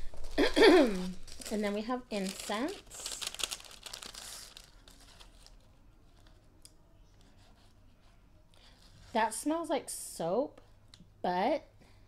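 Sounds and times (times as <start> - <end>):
paper envelope rustling: 0.0 - 6.5.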